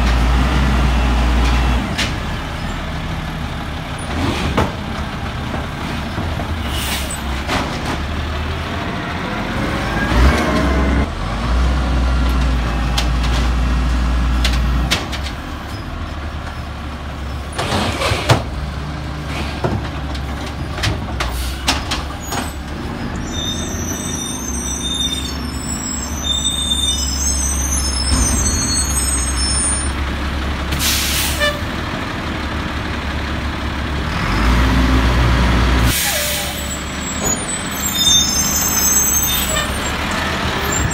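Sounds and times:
garbage truck engine running: 0:00.0 - 0:40.9
air brake hisses: 0:30.7 - 0:31.6, 0:35.9 - 0:36.7.

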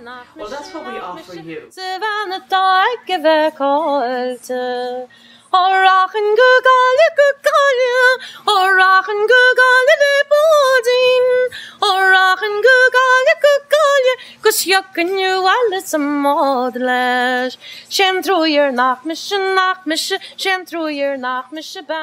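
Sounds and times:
woman singing unaccompanied: 0:00.0 - 0:22.0.

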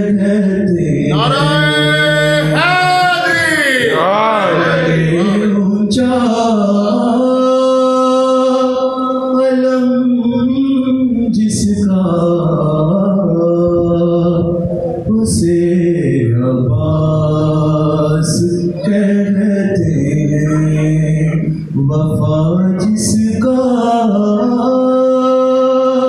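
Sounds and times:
man singing solo: 0:01.0 - 0:09.0.

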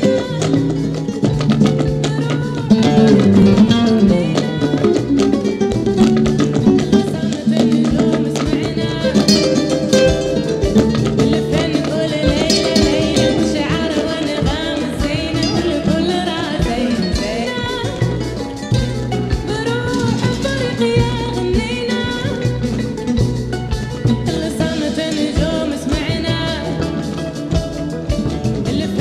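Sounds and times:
plucked guitar: 0:00.0 - 0:29.0
sustained bass notes: 0:01.1 - 0:07.0
high wavering melody: 0:02.7 - 0:05.4.

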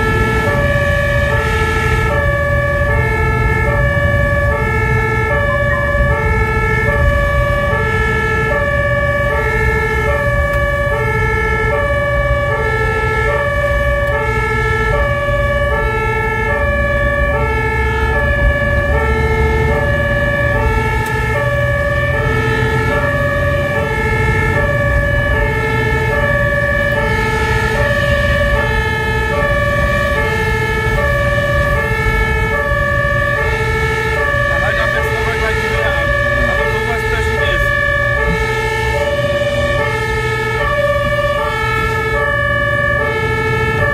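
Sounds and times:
truck engine and tyres rumbling: 0:00.0 - 0:43.9
two-tone fire engine siren: 0:00.0 - 0:43.9.

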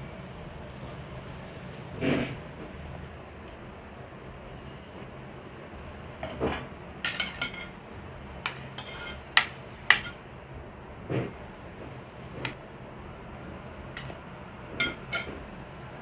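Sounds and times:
metal spoons clinking on plates: 0:07.0 - 0:07.7, 0:08.5 - 0:09.2, 0:14.8 - 0:15.4.

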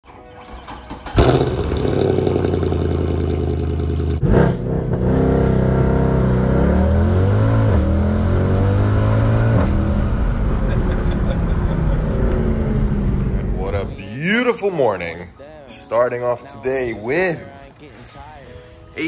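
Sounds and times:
car engine revving: 0:00.7 - 0:14.0.

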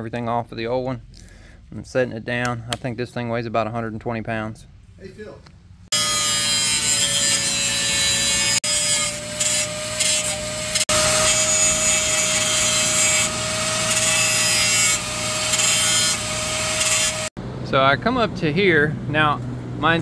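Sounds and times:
angle grinder grinding steel: 0:05.9 - 0:17.3.

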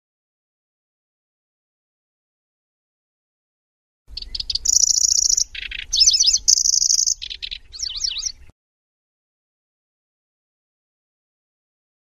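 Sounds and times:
bird song with buzzing trills: 0:04.1 - 0:08.5.

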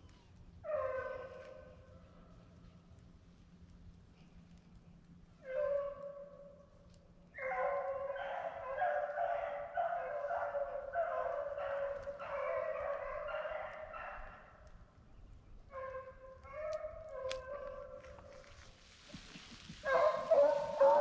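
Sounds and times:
dogs baying: 0:00.6 - 0:02.6, 0:05.4 - 0:06.3, 0:07.4 - 0:14.6, 0:15.7 - 0:18.6, 0:19.8 - 0:21.0.

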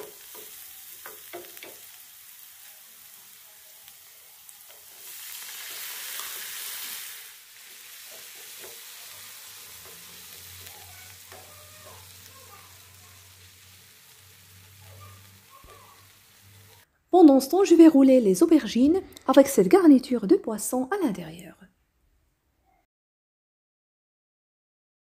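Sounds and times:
utensil tapping pan: 0:00.0 - 0:02.0, 0:08.0 - 0:09.1
onion sizzling in oil: 0:00.0 - 0:18.9.

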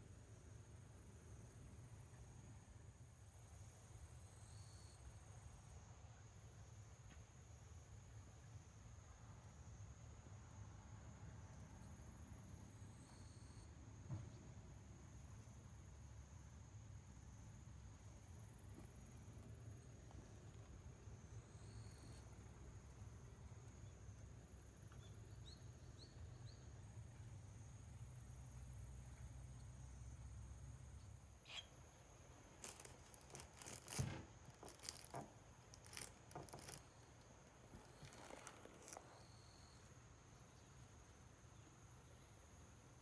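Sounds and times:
faint clicks and rustles: 0:32.4 - 0:39.2.

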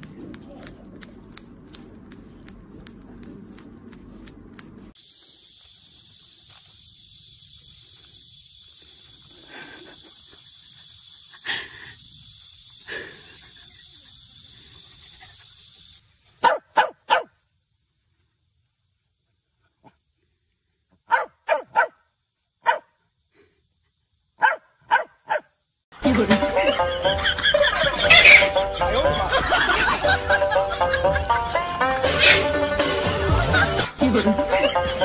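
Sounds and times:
steady high hiss: 0:03.5 - 0:16.4
dog barking: 0:16.4 - 0:17.4, 0:21.0 - 0:22.0, 0:22.6 - 0:22.9, 0:24.4 - 0:25.5.

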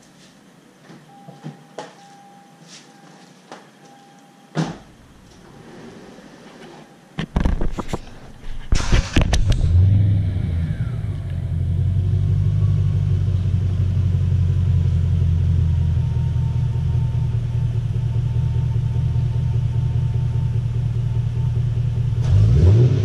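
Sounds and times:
car engine starting and idling: 0:08.8 - 0:23.0.

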